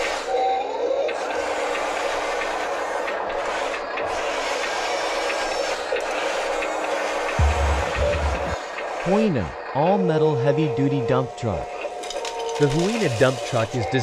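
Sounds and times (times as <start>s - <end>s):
toy loader electric motors whirring: 0.0s - 7.4s, 12.0s - 14.0s.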